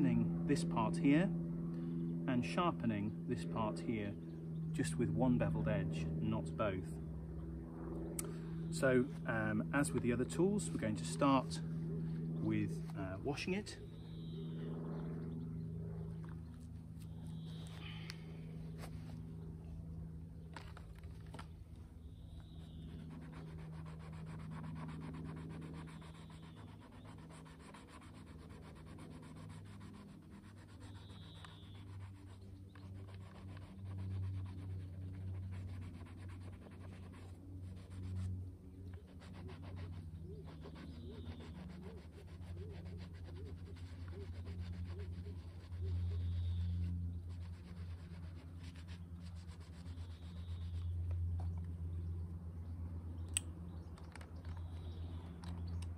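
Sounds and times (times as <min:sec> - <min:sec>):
low steady hum: 0:00.0 - 0:55.9
faint bird chirps: 0:13.7 - 0:15.7, 0:16.4 - 0:18.4, 0:30.8 - 0:31.9.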